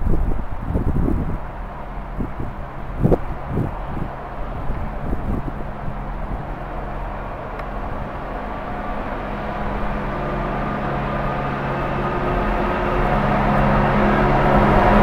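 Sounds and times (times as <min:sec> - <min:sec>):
diesel engine low hum: 0:00.0 - 0:15.0.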